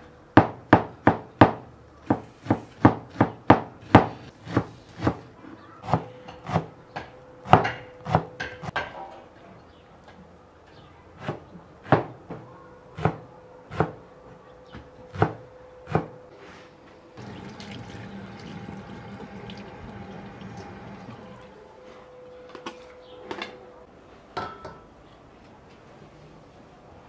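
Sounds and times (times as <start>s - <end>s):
tap water running into sink: 17.2s - 21.5s.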